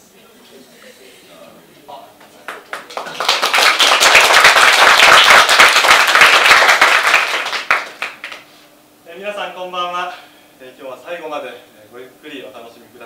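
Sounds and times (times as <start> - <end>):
audience applauding: 2.5 - 8.4.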